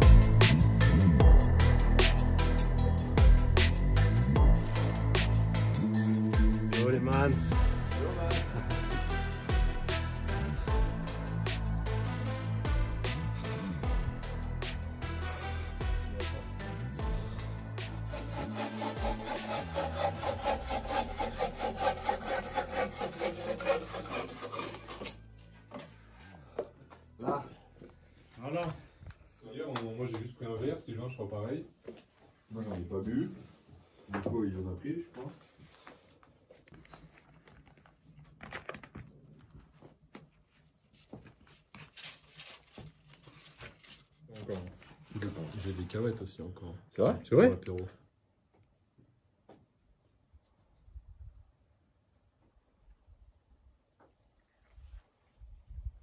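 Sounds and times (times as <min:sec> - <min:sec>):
bow saw cutting wood: 0:03.3 - 0:15.5, 0:17.2 - 0:25.9.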